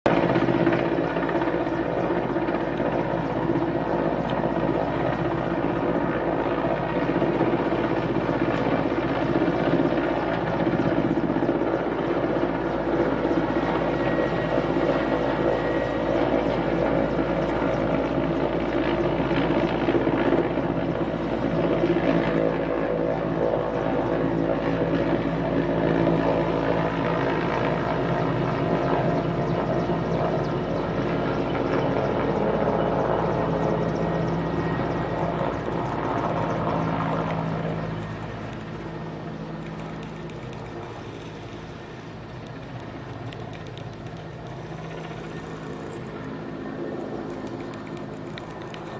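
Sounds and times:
helicopter hovering overhead: 0:00.0 - 0:48.9.

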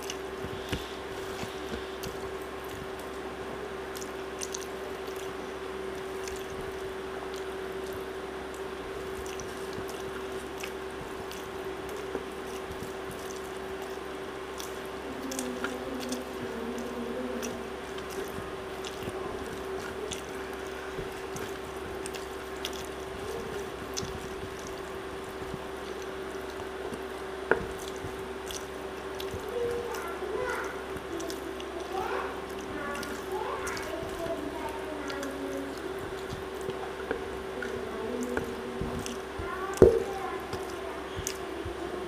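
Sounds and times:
faint steady hum: 0:00.0 - 0:42.0
sticky clicks of eating: 0:00.0 - 0:42.0
wet squishing of food by hand: 0:00.0 - 0:42.0.

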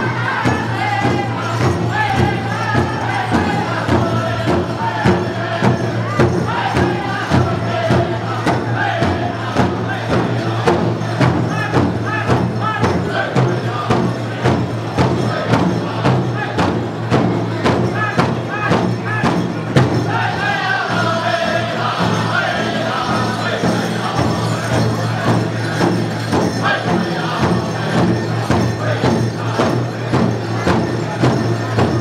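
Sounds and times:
big drum beating steadily: 0:00.0 - 0:32.0
group singing together: 0:00.0 - 0:32.0.

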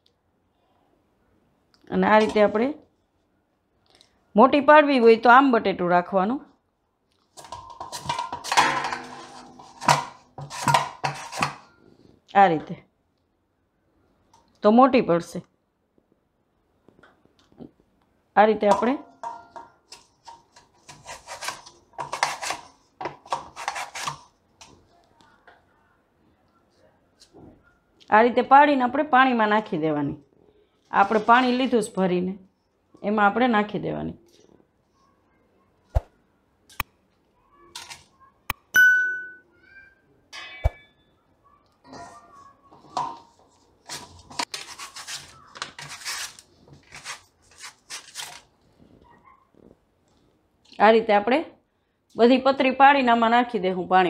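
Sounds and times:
potato scraping on slicer blade: 0:20.8 - 0:22.7, 0:23.3 - 0:24.3, 0:43.9 - 0:48.4.

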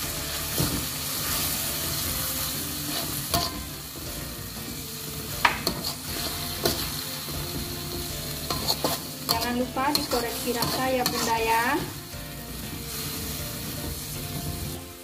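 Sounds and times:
vegetables sizzling in a wok: 0:00.0 - 0:15.0
metal spatula scraping wok: 0:00.2 - 0:04.4, 0:05.0 - 0:14.8
spatula knocking on wok: 0:03.3 - 0:03.7, 0:05.4 - 0:06.9.

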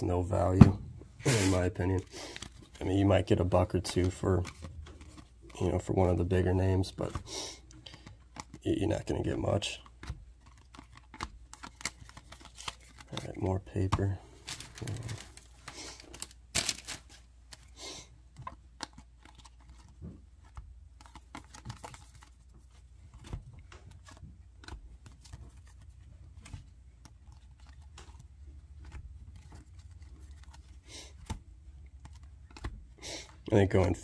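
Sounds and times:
cards clicking and rustling: 0:01.2 - 0:34.0.

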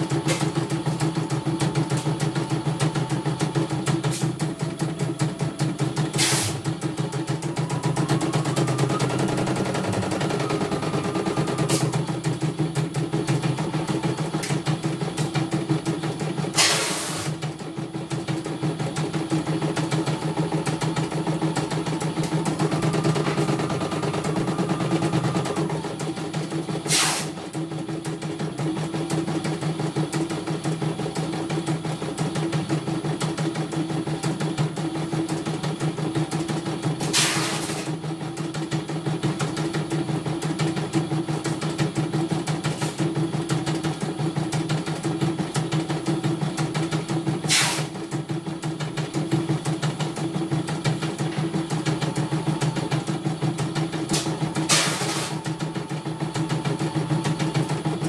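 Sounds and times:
embroidery machine stitching: 0:00.0 - 0:58.0.

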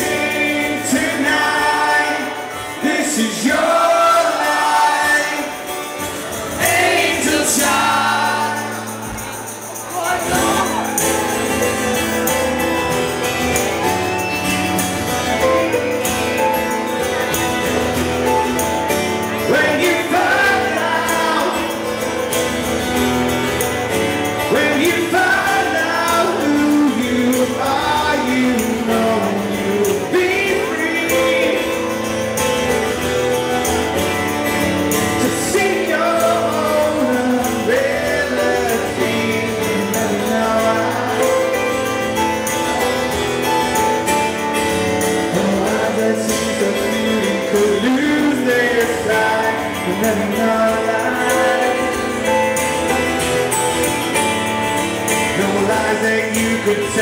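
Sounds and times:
man singing: 0:00.0 - 0:11.8, 0:19.3 - 0:22.3, 0:24.4 - 0:32.7, 0:35.0 - 0:42.9, 0:45.1 - 0:54.3, 0:55.0 - 0:57.0
band backing: 0:00.0 - 0:57.0
strummed acoustic guitar: 0:00.0 - 0:57.0.

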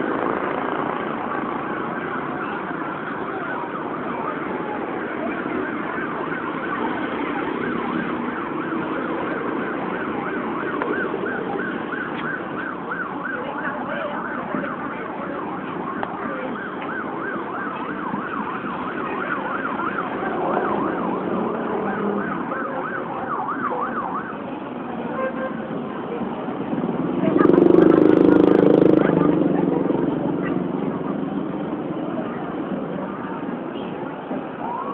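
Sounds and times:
motorbikes: 0:00.0 - 0:34.9
street traffic: 0:00.0 - 0:34.9
siren yelping: 0:01.3 - 0:24.6, 0:34.6 - 0:34.9.

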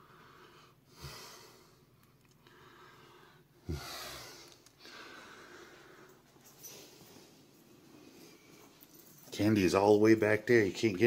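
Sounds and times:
person breathing out: 0:02.5 - 0:06.2.

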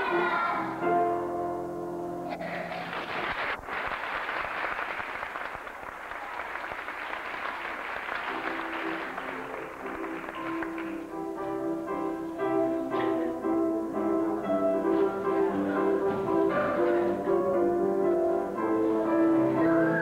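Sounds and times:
music with held notes: 0:00.0 - 0:02.3, 0:08.3 - 0:20.0
audience applauding: 0:02.4 - 0:11.2.

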